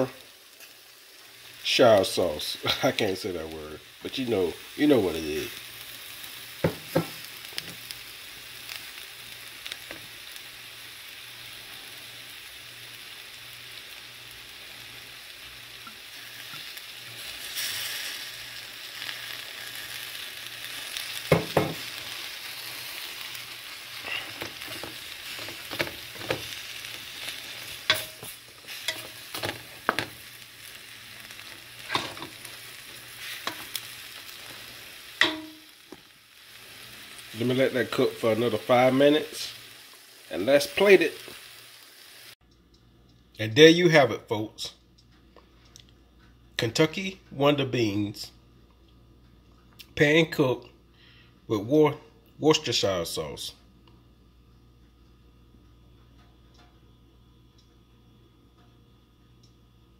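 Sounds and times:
beans sizzling in a pan: 0.0s - 42.4s.

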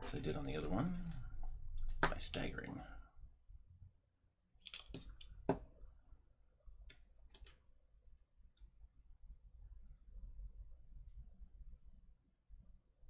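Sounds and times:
faint low room hum: 0.0s - 13.0s
small clicks and taps of tools: 6.8s - 7.6s.

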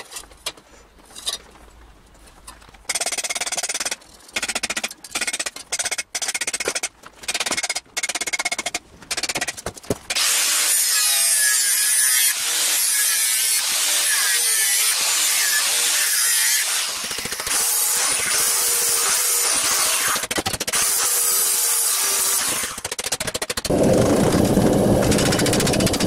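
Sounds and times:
angle grinder grinding steel: 10.2s - 20.2s.

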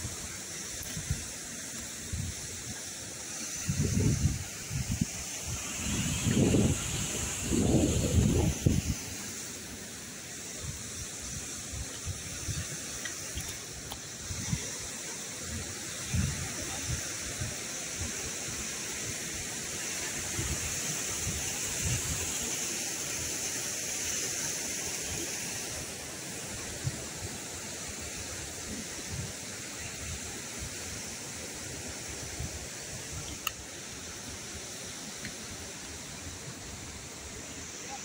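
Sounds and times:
mountain stream rushing: 0.0s - 38.0s.

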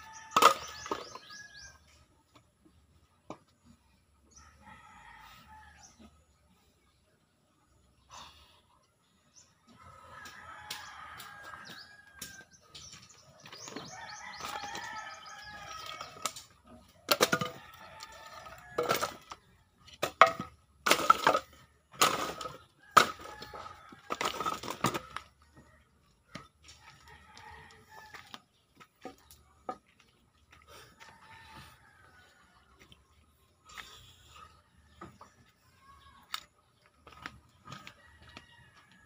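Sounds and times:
rooster crowing: 13.9s - 16.2s, 37.8s - 39.0s.

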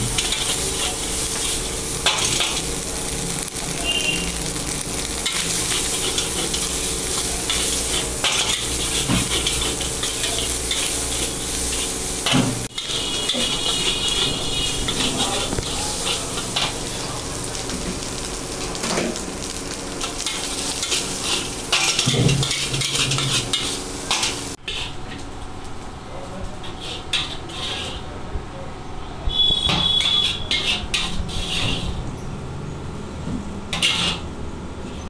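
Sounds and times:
metal ladle scraping wok: 0.0s - 17.1s, 20.0s - 25.2s, 26.6s - 28.2s, 29.5s - 32.0s, 33.7s - 34.3s
rice sizzling in wok: 0.0s - 28.1s, 29.4s - 32.0s.

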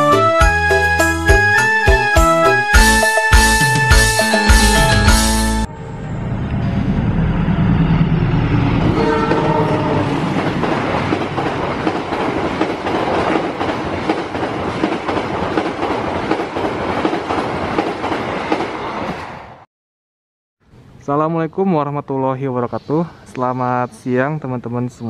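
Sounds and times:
train horn blast: 4.3s - 7.0s, 8.8s - 10.3s
train engine rumble: 4.6s - 19.6s.

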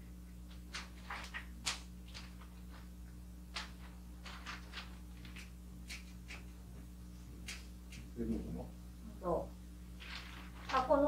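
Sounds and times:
steady low hum: 0.0s - 11.0s
wrapping paper rustling: 0.5s - 6.6s, 9.9s - 11.0s.

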